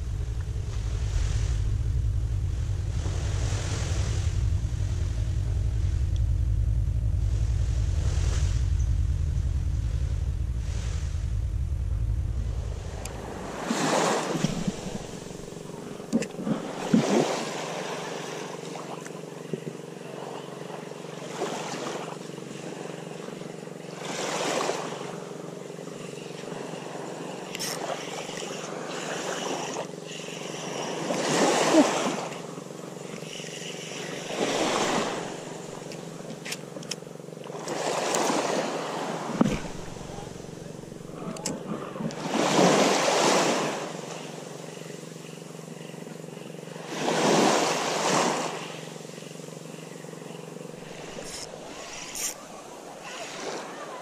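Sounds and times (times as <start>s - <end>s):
steady low hum: 0.0s - 53.9s
small waves washing on shore: 12.5s - 54.0s.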